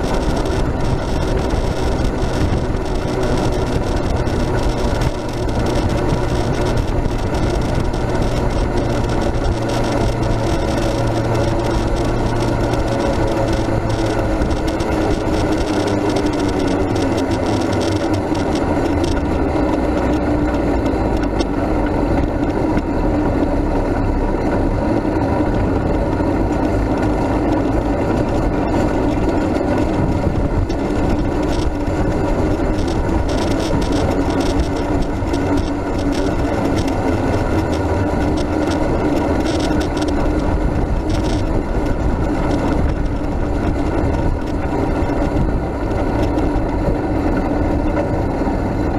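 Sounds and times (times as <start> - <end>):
steady hum: 0.0 - 48.9
towed vehicle rolling and rattling: 0.0 - 48.9
wind noise: 0.0 - 48.9.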